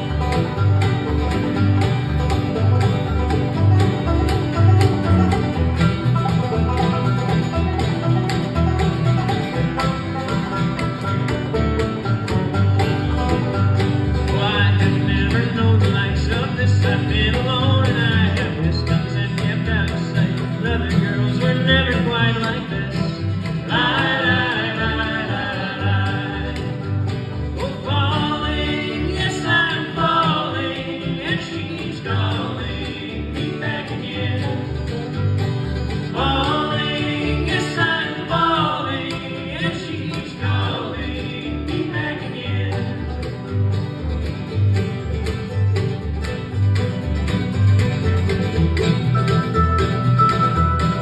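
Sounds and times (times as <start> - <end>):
bluegrass band playing: 0.0 - 51.0
person singing: 14.3 - 26.8, 36.1 - 43.2.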